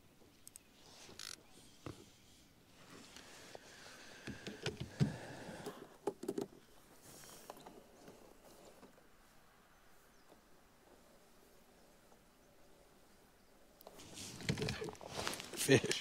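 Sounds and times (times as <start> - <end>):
fishing rod clicks and knocks: 6.0 - 6.5.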